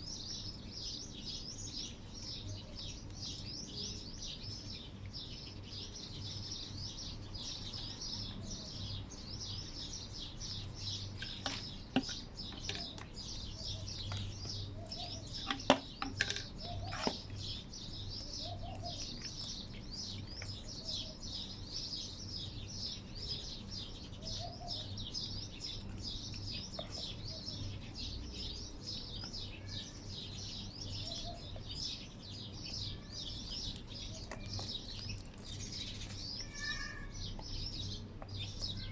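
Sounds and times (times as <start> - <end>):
small birds chirping: 0.0 - 38.9
sharp knocks and clatters: 15.4 - 17.2.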